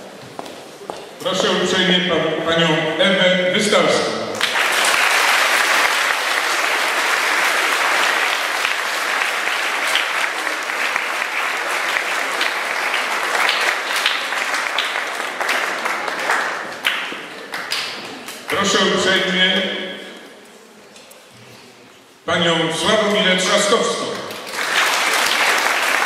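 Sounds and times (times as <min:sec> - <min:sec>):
audience applauding: 0:04.4 - 0:18.6, 0:24.3 - 0:26.0.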